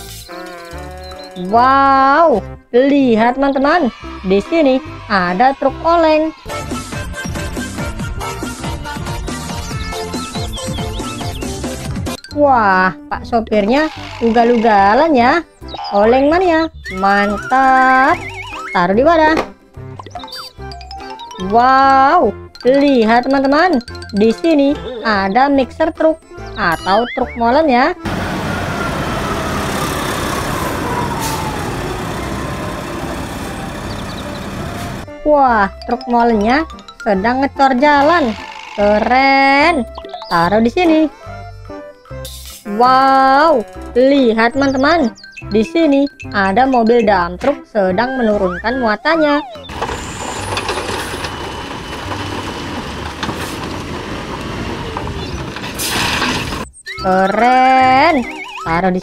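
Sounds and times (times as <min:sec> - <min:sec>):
diesel truck driving past: 0:28.0 - 0:35.2, 0:49.4 - 0:56.6
rocks and earth tipping out: 0:49.4 - 0:58.6.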